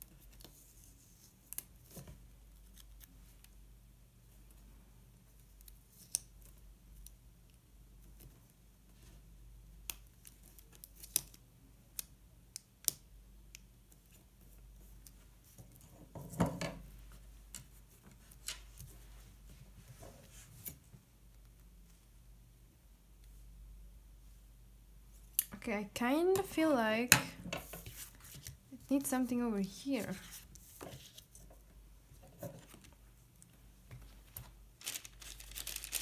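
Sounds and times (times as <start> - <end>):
paper rustle: 34.2 - 36.0.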